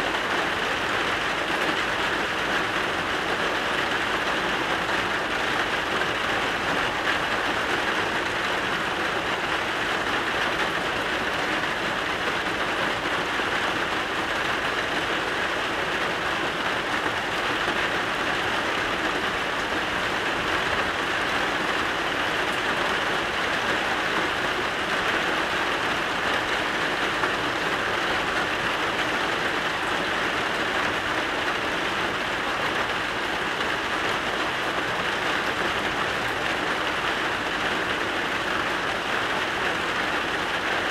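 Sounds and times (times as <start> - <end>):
steady rain falling: 0.0 - 40.9.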